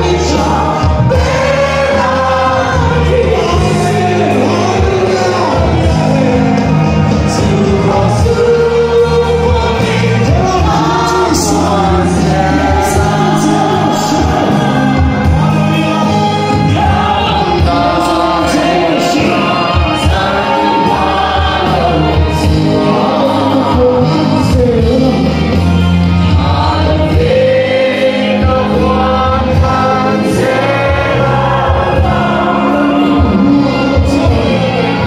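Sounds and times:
amplified band: 0.0s - 35.0s
choir singing: 0.0s - 35.0s.

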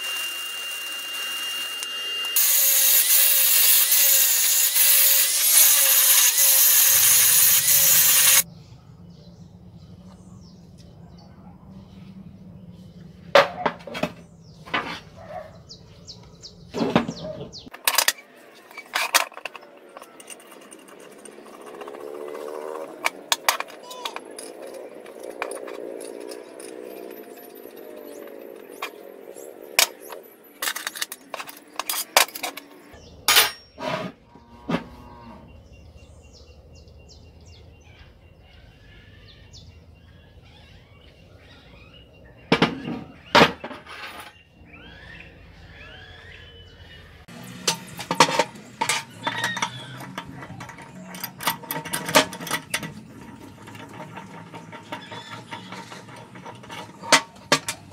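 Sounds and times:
metallic clinks and knocks: 47.4s - 57.9s.

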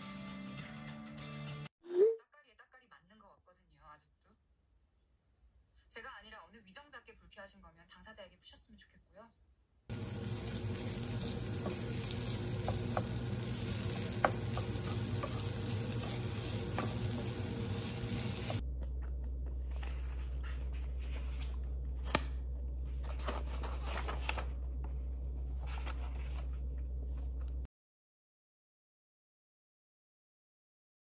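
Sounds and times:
food sizzling in a frying pan: 9.9s - 18.6s
low steady hum: 9.9s - 27.7s.

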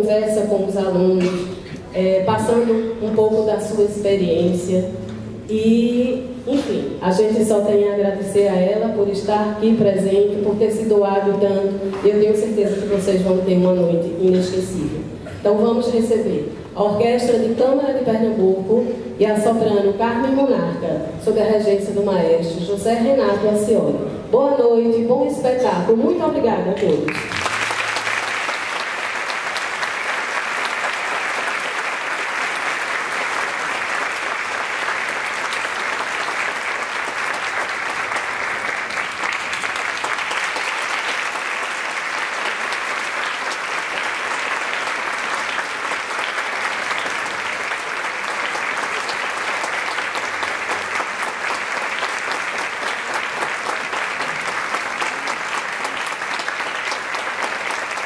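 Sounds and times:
audience applauding: 27.1s - 58.0s.

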